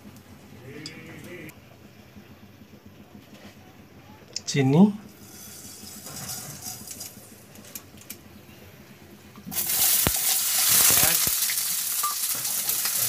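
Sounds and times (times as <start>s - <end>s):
onions sizzling in oil: 5.2s - 7.2s, 9.5s - 13.0s
faint hiss of hot oil: 9.5s - 13.0s.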